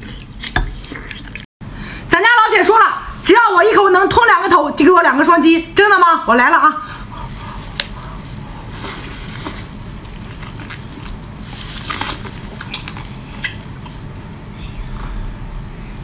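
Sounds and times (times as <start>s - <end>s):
low steady rumble: 5.6s - 16.0s
wet chewing and squelching: 7.0s - 16.0s.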